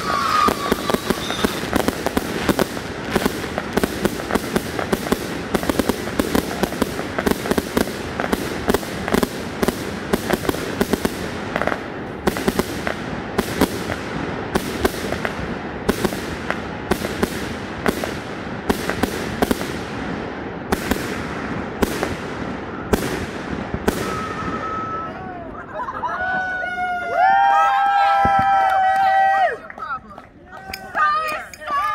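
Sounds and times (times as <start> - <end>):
fireworks crackle: 0.0 - 25.1
fireworks launches and bursts: 0.0 - 25.4, 27.3 - 29.4.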